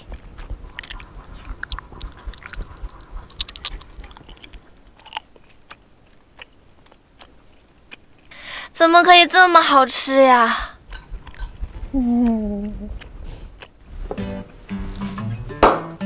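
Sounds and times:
person chewing wetly: 0.0 - 8.5, 10.8 - 13.8.

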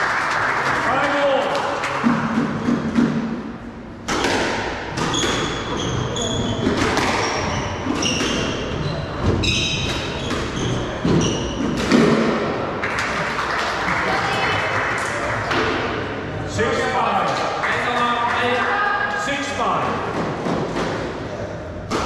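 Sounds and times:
squash ball knocks: 4.1 - 5.6
shoes squeaking on wooden floor: 5.0 - 11.8.

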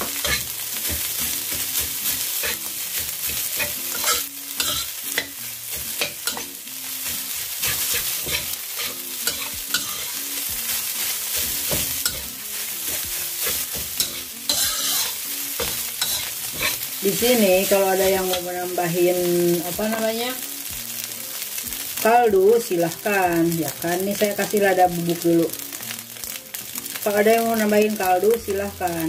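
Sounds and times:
metal spatula scraping a wok: 0.0 - 18.8
hot pan sizzling: 0.0 - 29.0.

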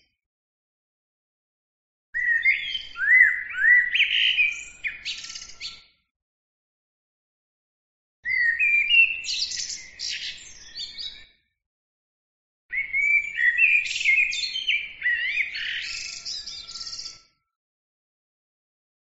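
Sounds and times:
songbird singing: 2.2 - 5.9, 8.3 - 11.4, 12.7 - 17.3.

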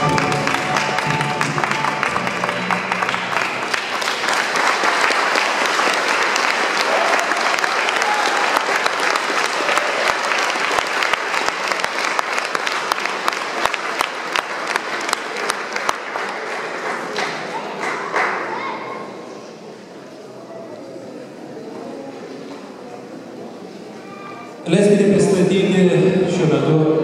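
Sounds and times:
audience applauding: 0.0 - 18.7.

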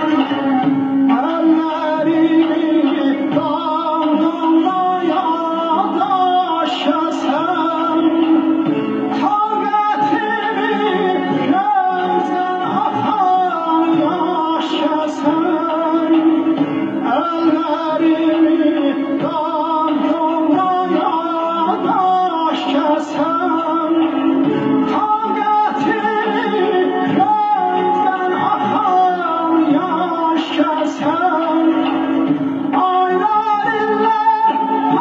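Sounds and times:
instrumental accompaniment: 0.0 - 35.0
man singing ornamented vocal line: 0.0 - 35.0.

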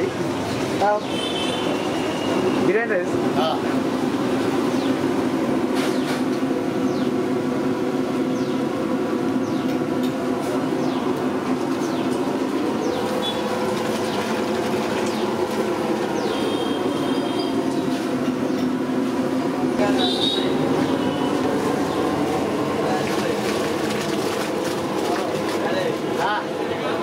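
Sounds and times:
gas burner roaring: 0.0 - 27.0.

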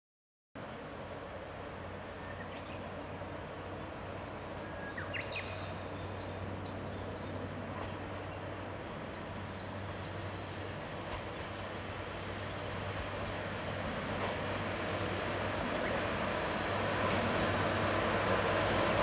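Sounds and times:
diesel railcar approaching: 0.6 - 19.0.

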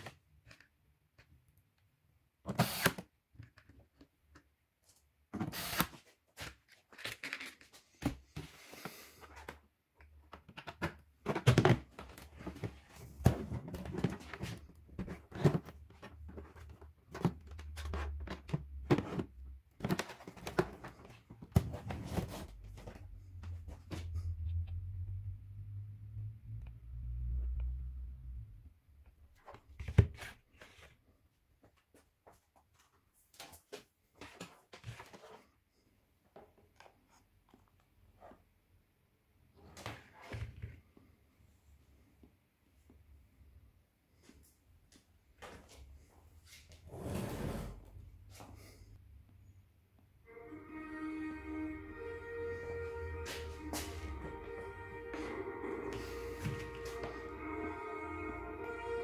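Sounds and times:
music with steady held tones: 50.2 - 59.0.

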